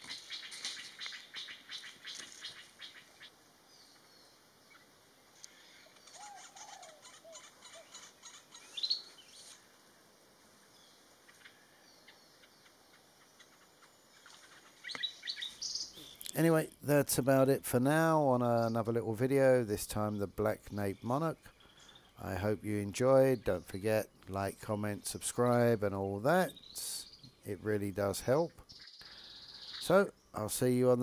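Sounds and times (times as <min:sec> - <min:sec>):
faint bird calls: 0:00.0 - 0:09.8, 0:10.7 - 0:16.4, 0:20.0 - 0:22.5, 0:28.3 - 0:30.4.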